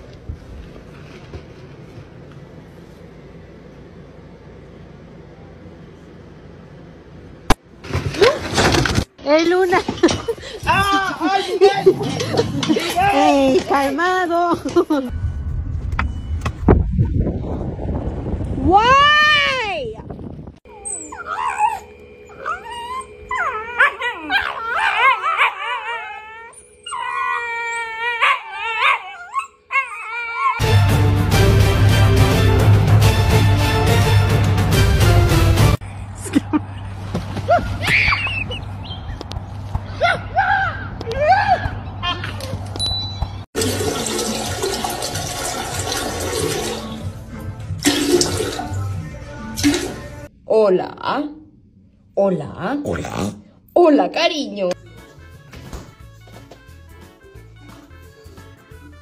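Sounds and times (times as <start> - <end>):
dogs whining and screaming: 20.7 - 30.8, 37.6 - 39.0
toilet flushing: 43.6 - 48.9, 49.6 - 50.1.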